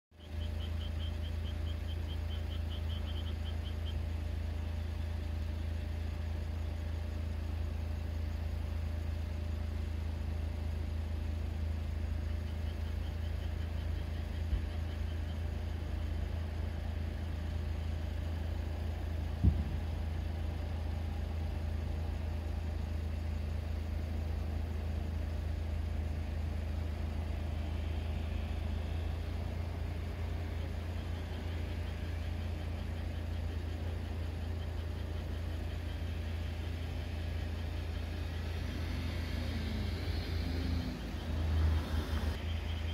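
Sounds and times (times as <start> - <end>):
engine idling: 0.1 - 42.9
dull thump: 19.4 - 19.9.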